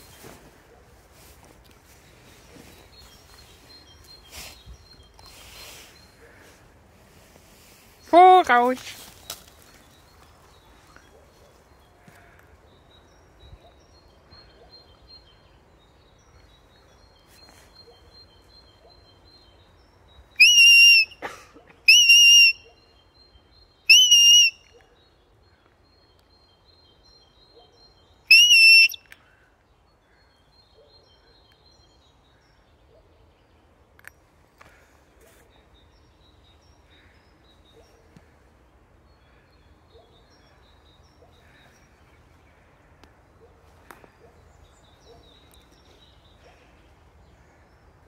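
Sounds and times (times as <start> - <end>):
dog whistle blasts: 20.4 - 21.2, 21.9 - 22.6, 23.9 - 24.6, 28.3 - 29.0.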